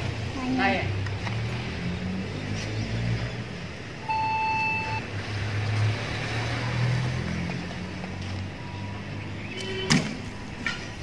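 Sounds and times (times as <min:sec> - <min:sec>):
beep: 0:04.0 - 0:05.1.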